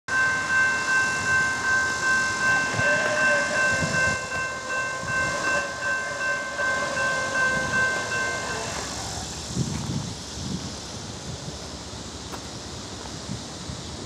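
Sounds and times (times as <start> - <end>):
crossing warning bell ringing: 0.1 - 9.5
distant locomotive horn: 2.3 - 9.3.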